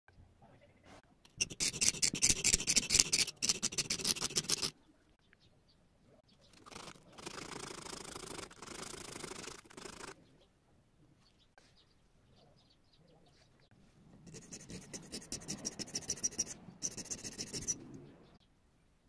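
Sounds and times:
hand file rasping on steel: 0:01.4 - 0:04.7, 0:14.3 - 0:17.8.

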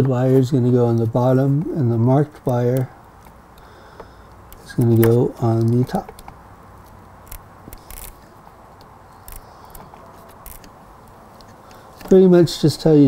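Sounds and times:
small parts clicking and scraping: 0:02.5 - 0:12.2.

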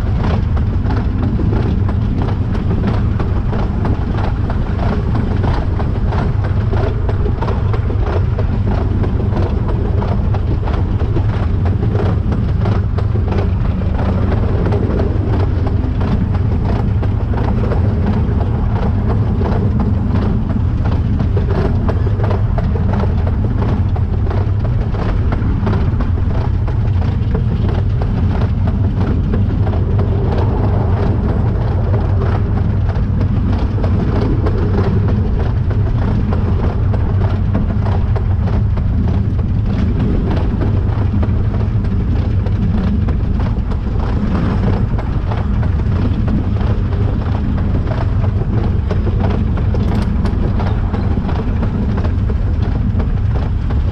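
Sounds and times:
steam locomotive running: 0:00.0 - 0:53.9
wheels on rails: 0:00.0 - 0:53.9.

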